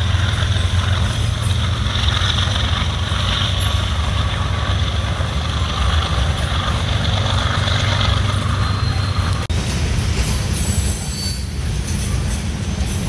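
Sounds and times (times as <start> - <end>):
locomotive engine drone: 0.0 - 13.0.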